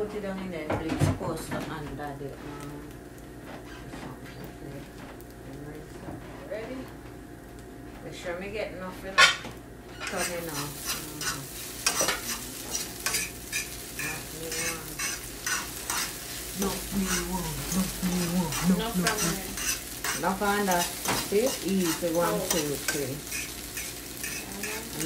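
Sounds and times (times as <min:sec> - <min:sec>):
eggs frying sizzle: 0:01.4 - 0:25.0
spatula scraping frying pan: 0:09.9 - 0:25.0.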